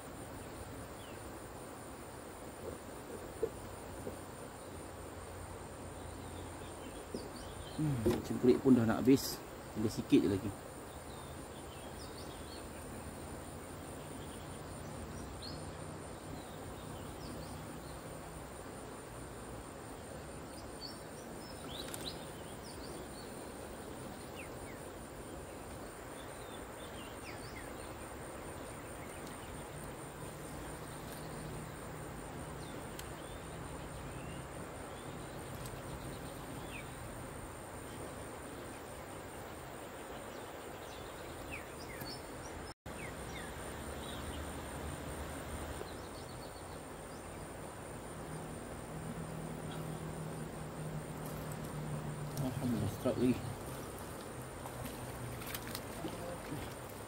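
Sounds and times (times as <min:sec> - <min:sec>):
insect trill pulsing: 0:00.0 - 0:57.0.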